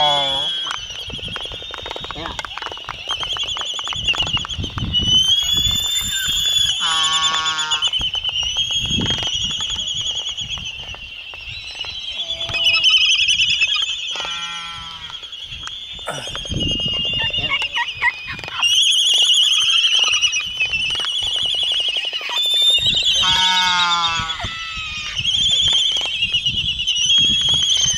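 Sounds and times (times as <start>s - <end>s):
albatross whinnying calls: 0.0s - 1.0s, 5.0s - 8.1s, 12.1s - 15.3s, 22.1s - 25.8s
seabird colony trilling din: 6.6s - 11.0s, 11.8s - 26.1s.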